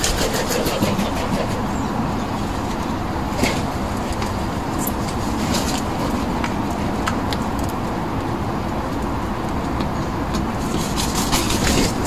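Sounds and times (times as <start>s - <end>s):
birds pecking on paving: 0.0s - 12.0s
road traffic rumble: 0.0s - 12.0s.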